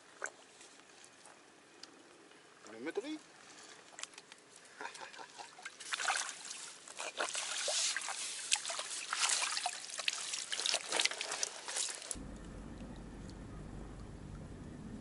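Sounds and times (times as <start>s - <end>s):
small water splashes: 3.3s - 12.2s
water pouring and dripping from net: 3.5s - 12.2s.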